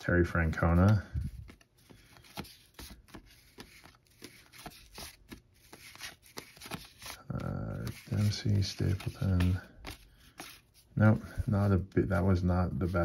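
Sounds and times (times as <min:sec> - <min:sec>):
cards flicking and tapping: 0:00.6 - 0:10.7.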